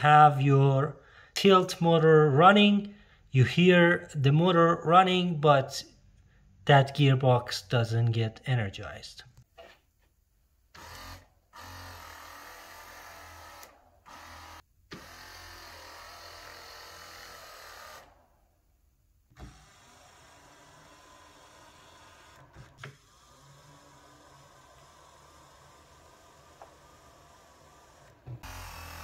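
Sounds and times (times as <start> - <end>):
electric motor whirring: 10.8 - 18.2, 19.3 - 29.0.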